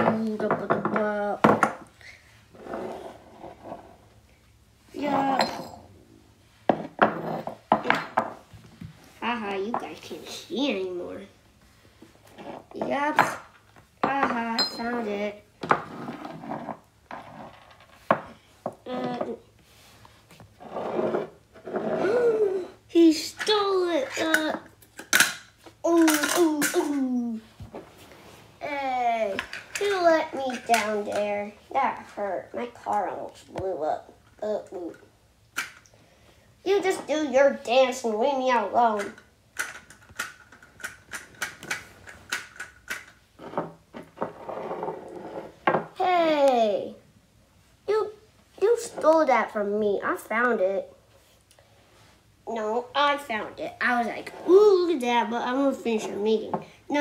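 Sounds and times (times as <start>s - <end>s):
figurines scraping on wooden table: 2.5s - 4.1s, 12.2s - 12.8s, 15.6s - 22.8s, 43.4s - 45.9s, 54.1s - 54.8s
child vocal sound: 18.9s - 19.4s, 22.0s - 22.9s.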